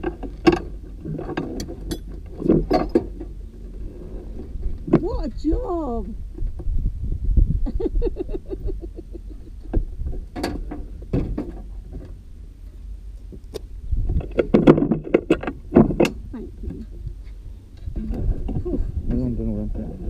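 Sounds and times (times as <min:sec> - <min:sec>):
harness buckles clicking and rattling: 0:00.0 - 0:03.3
low rumble: 0:00.0 - 0:20.0.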